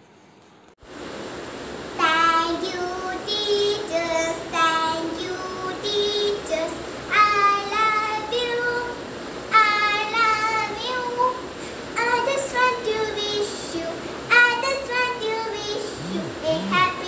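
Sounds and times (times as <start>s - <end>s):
girl singing solo: 12.0s - 17.0s.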